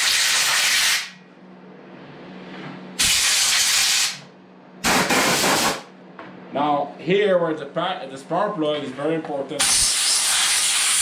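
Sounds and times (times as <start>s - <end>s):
compressed air hissing: 9.6s - 11.0s.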